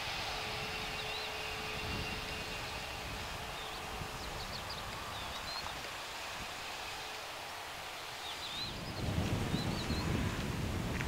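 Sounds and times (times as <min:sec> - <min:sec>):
faint jet engine whine: 0:00.0 - 0:11.0
jet engine rumble: 0:00.0 - 0:11.0
small birds chirping: 0:00.7 - 0:06.0, 0:08.0 - 0:10.2.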